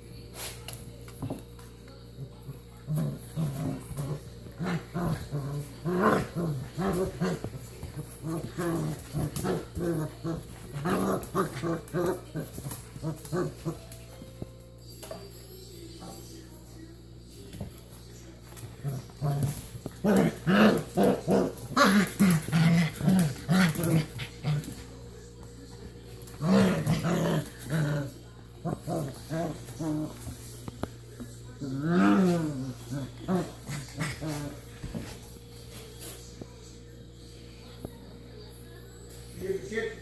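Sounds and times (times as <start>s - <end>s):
puppies growling: 2.1s - 14.2s, 18.5s - 25.0s, 25.8s - 35.5s.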